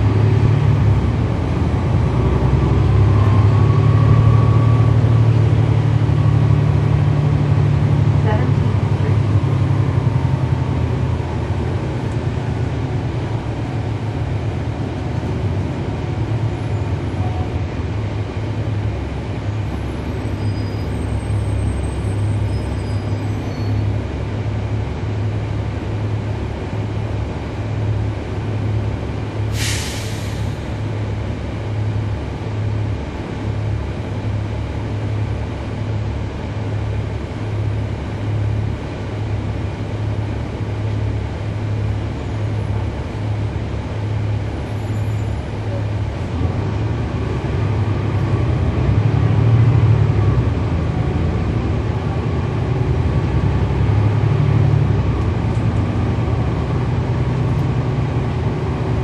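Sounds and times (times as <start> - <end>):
bus diesel engine droning: 0.0 - 59.0
air hiss from bus: 29.5 - 30.7.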